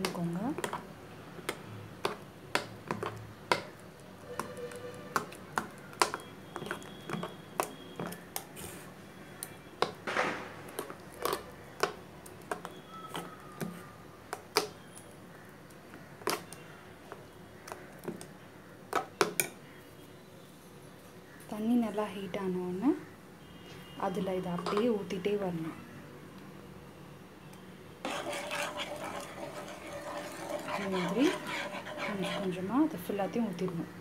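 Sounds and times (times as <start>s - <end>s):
spoon scraping jar: 28.0s - 33.0s.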